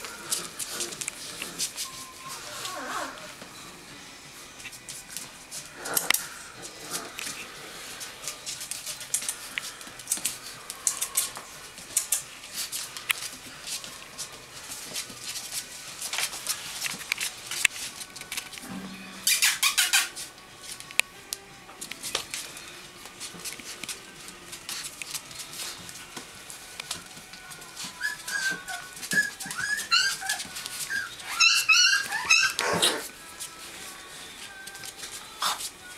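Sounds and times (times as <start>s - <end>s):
puppy claws clicking on floor: 0.0s - 2.0s, 8.0s - 33.6s, 34.4s - 35.7s
puppies squeaking: 1.6s - 3.4s, 19.2s - 20.3s, 27.8s - 33.1s.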